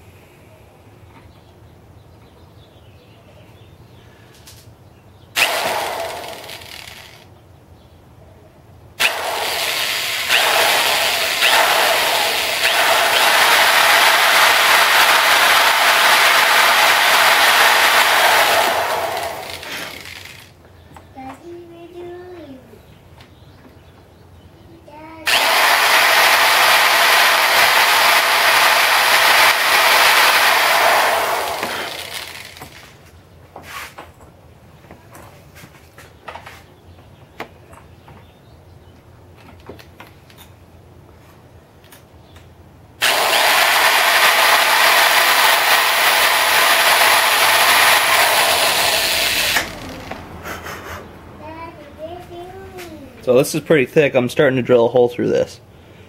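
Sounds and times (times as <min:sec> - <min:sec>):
electric drill whining: 0:05.4 - 0:07.3, 0:09.0 - 0:20.5, 0:25.3 - 0:32.9, 0:43.0 - 0:50.3.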